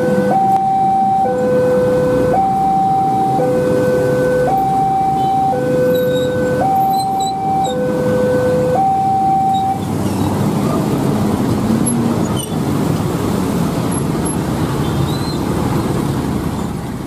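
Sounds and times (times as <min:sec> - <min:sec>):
two-tone alarm: 0:00.0 - 0:09.8
motorcycles idling and passing: 0:00.0 - 0:17.0
road traffic: 0:00.0 - 0:17.0.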